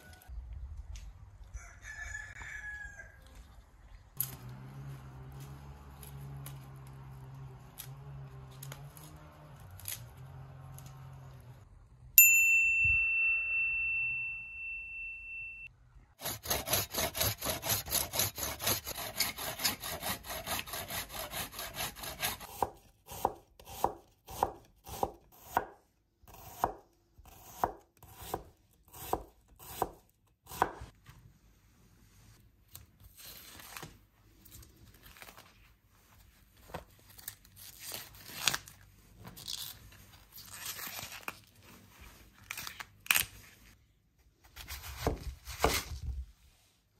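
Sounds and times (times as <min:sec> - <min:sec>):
high ringing tone: 0:12.2 - 0:15.8
knife chopping on cutting board: 0:20.5 - 0:30.9.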